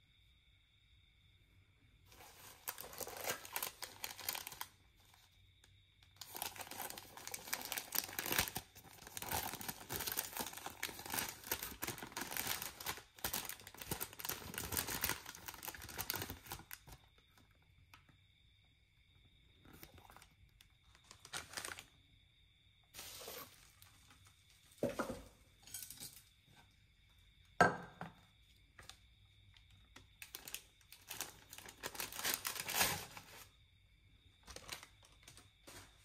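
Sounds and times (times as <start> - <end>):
paper bag crinkling: 2.1 - 5.2, 6.2 - 17.0, 19.6 - 22.0, 23.0 - 24.3, 30.2 - 33.5, 34.4 - 36.0.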